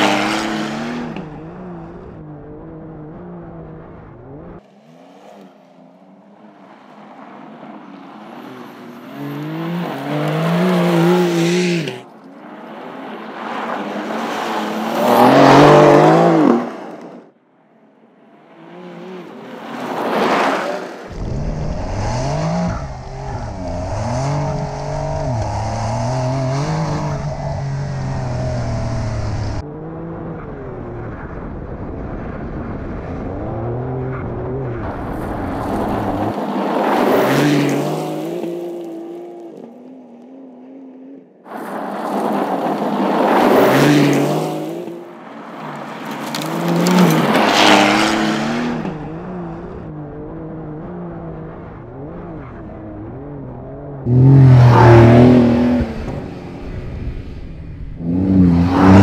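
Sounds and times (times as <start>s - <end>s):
car passing by: 4.6s - 17.2s, 18.4s - 29.6s, 32.9s - 39.5s, 41.5s - 49.6s, 54.0s - 59.0s
car engine revving: 7.4s - 17.2s, 18.4s - 31.5s, 32.2s - 41.2s, 41.9s - 59.0s
gravel spraying from tyres: 35.0s - 38.9s, 41.5s - 48.5s.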